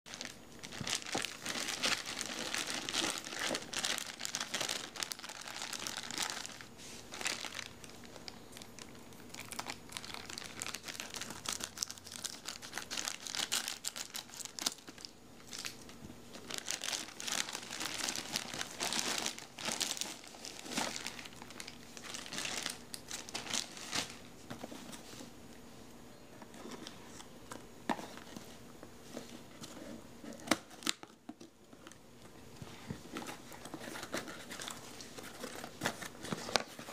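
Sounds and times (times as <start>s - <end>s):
plastic mailer bag crinkling: 0.1s - 25.1s.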